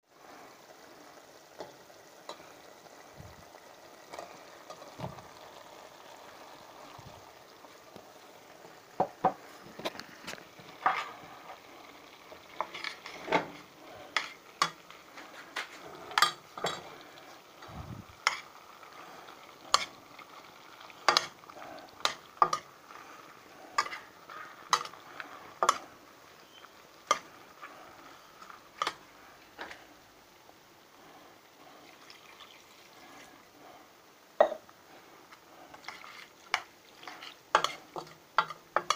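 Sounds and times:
low sizzle from pot: 0.0 - 38.9.

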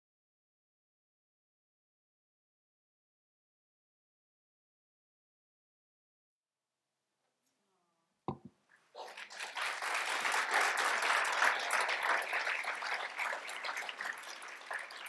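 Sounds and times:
audience applauding: 9.0 - 15.0.

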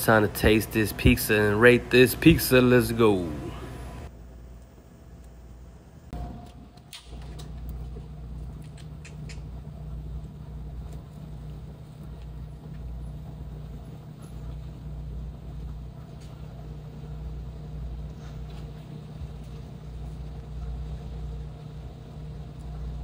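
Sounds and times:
chewing pizza with crunches: 7.0 - 13.1.

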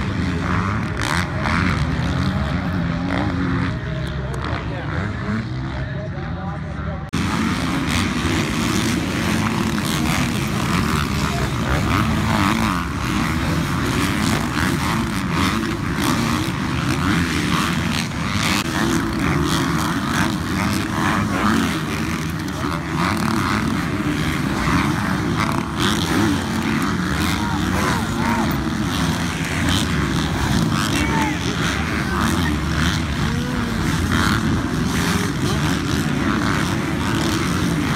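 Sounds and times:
motocross bike engines revving: 0.0 - 37.9.

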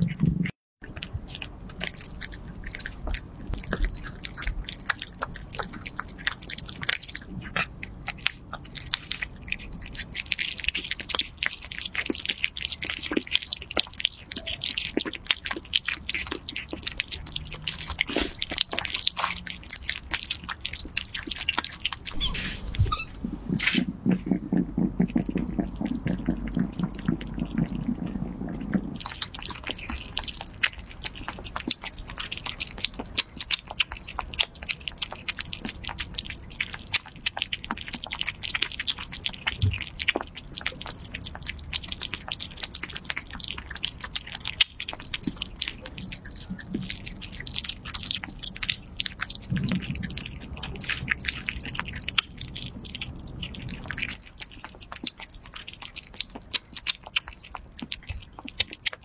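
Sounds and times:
kitten low rumble: 0.0 - 0.5, 22.1 - 30.2, 49.4 - 54.1
kittens chewing and smacking: 0.0 - 59.0.

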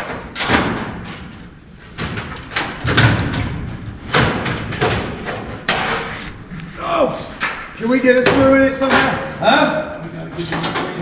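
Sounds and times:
sheet-metal panel banging and rattling: 0.0 - 6.1, 7.4 - 9.5, 10.2 - 11.0.

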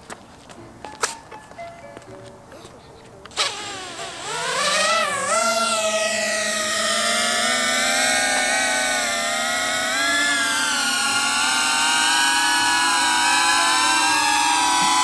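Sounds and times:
drone motors whining: 3.3 - 15.0.

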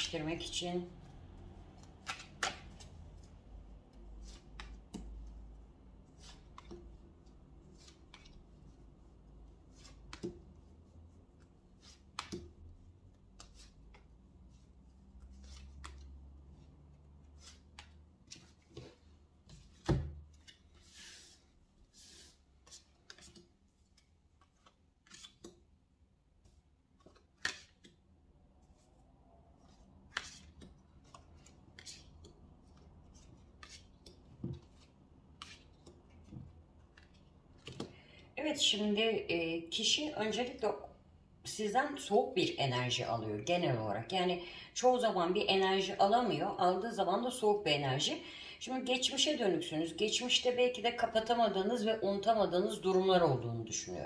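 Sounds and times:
cards being shuffled: 1.5 - 8.9, 9.5 - 10.6, 11.4 - 14.2, 14.9 - 25.7, 26.4 - 28.0, 29.6 - 38.1.

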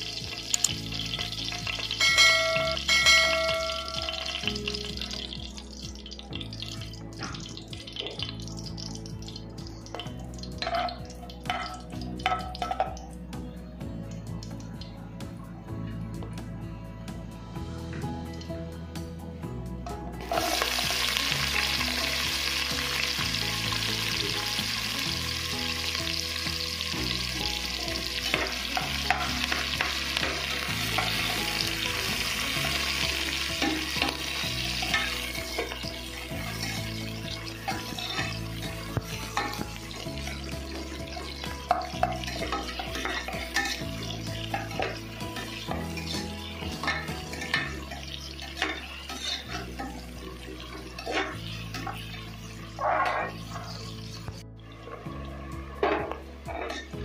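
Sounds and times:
onions sizzling in hot oil: 0.0 - 13.0, 20.2 - 55.1
metal spoon scraping pot: 37.7 - 38.4, 41.7 - 46.2, 46.8 - 54.2, 55.8 - 57.0.

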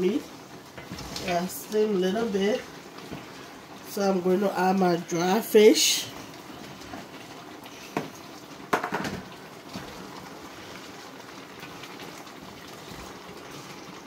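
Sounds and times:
meat sizzling in a pot: 0.0 - 14.0
wooden spoon knocking a pot: 8.7 - 9.2.

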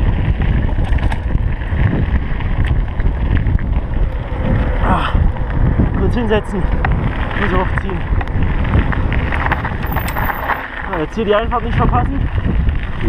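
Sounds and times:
bike rattling: 0.0 - 13.0
tyres crunching on gravel: 0.0 - 13.0
wind buffeting microphone: 0.0 - 13.0.

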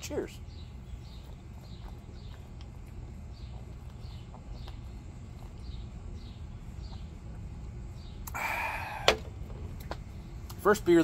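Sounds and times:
low background rumble: 0.0 - 11.0
breathy exhale: 8.3 - 9.2.

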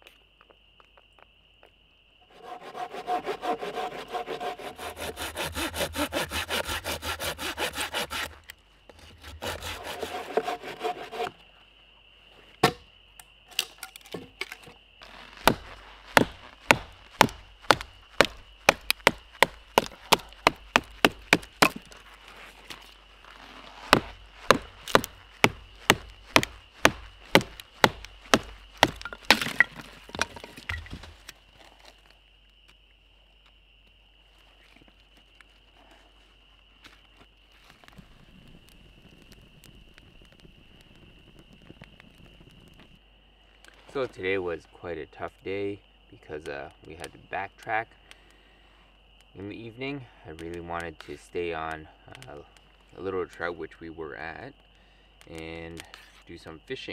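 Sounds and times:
hand saw cutting wood: 2.3 - 8.4, 9.0 - 11.4
sharp knocks on wood: 23.9 - 31.1.

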